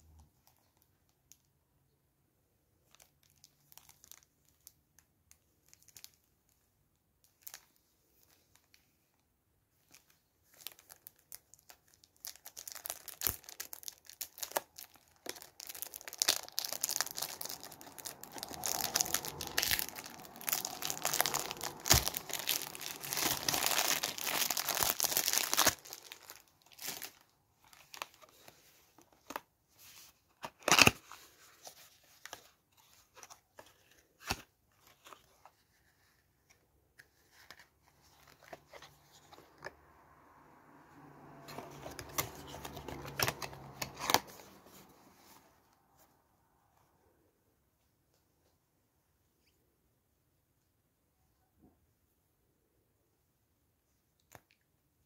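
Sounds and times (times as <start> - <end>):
shrink wrap crinkling and tearing: 2.8 - 6.3, 9.8 - 35.8, 41.4 - 45.0.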